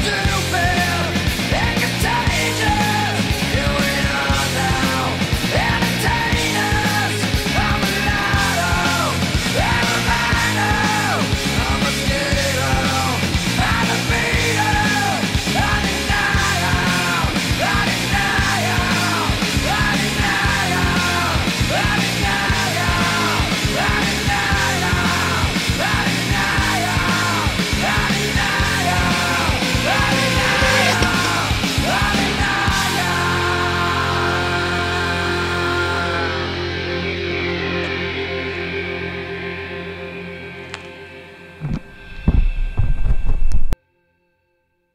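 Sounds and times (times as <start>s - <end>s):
fast drum beat: 0.0s - 34.2s
shouted vocals: 0.0s - 36.6s
bass: 0.0s - 43.8s
distorted guitar: 0.0s - 43.8s.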